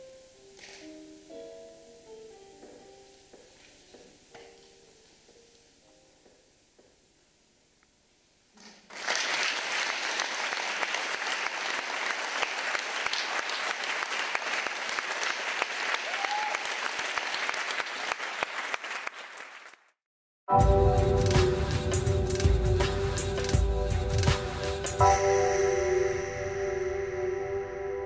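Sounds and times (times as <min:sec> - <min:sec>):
theatre audience applauding: 0:08.9 - 0:19.9.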